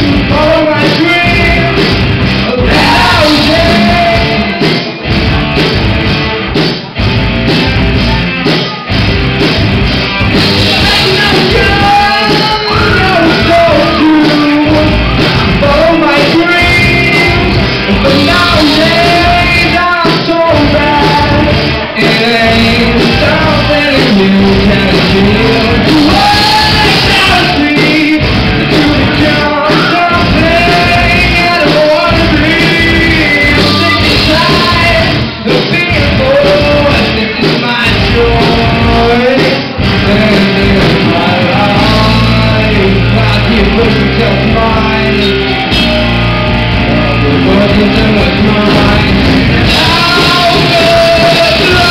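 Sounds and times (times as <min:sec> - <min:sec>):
man singing: 0:00.0 - 0:05.0, 0:10.1 - 0:51.9
drums: 0:00.0 - 0:51.9
electric guitars: 0:00.0 - 0:51.9.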